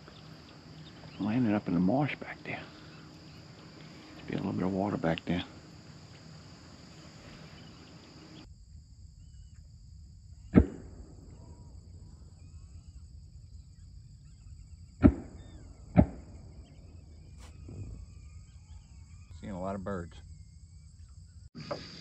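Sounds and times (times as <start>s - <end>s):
shotgun shots: 10.5s - 11.4s, 15.0s - 16.6s.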